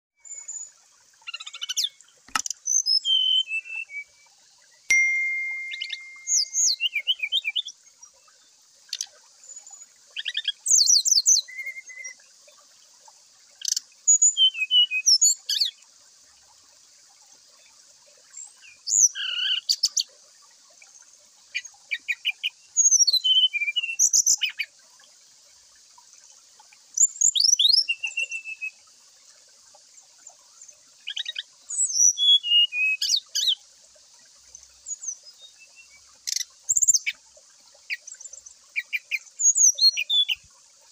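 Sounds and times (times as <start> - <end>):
bird singing whistles: 2.7 - 4.2, 4.9 - 7.7, 10.8 - 12.2, 14.1 - 15.4, 22.8 - 24.1, 27.2 - 28.8, 31.8 - 33.2, 38.8 - 40.4
faint high hiss: 4.9 - 8.4.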